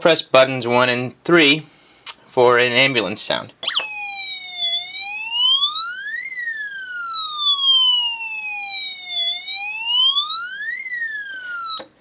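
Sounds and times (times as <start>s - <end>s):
electronic siren wailing: 3.6s - 12.0s.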